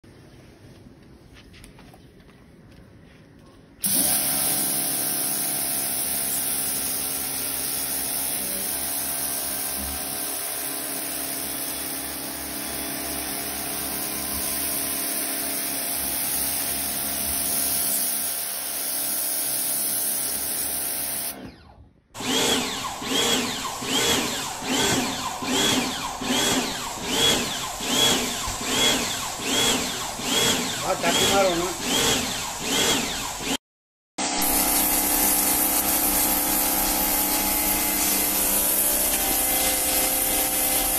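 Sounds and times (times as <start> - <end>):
pressure washer spraying: 3.8 - 21.4, 22.2 - 33.6, 34.2 - 40.9
pulsing water spray: 3.8 - 21.4, 34.2 - 40.9.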